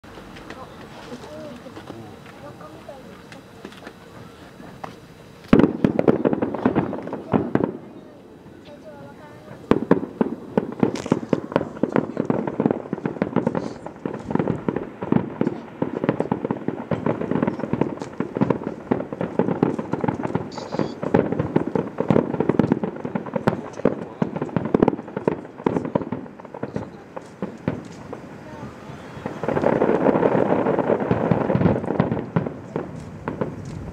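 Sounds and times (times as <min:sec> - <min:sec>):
fireworks bursting: 0:00.0 - 0:33.9.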